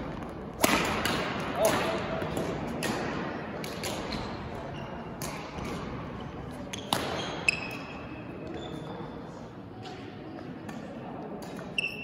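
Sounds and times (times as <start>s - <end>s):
racket hitting shuttlecock: 0.1s - 4.4s, 5.2s - 6.0s, 6.7s - 8.0s
sneakers squeaking on court floor: 4.0s - 9.2s.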